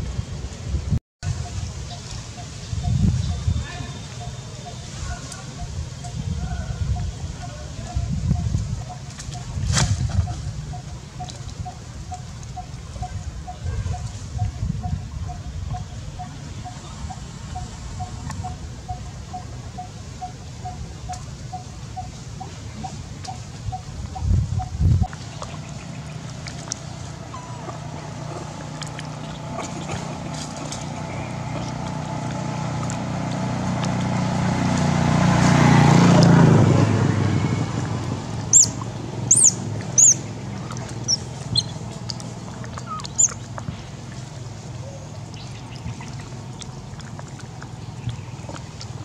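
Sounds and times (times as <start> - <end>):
vehicle engine passing by: 25.1 - 46.5.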